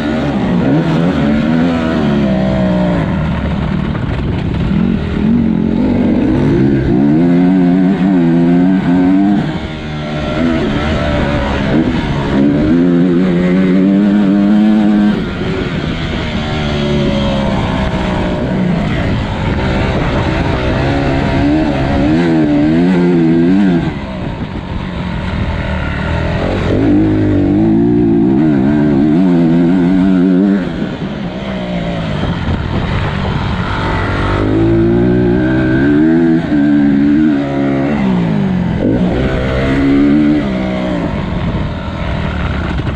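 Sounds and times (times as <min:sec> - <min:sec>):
dirt bike engine revving: 0:00.0 - 0:42.9.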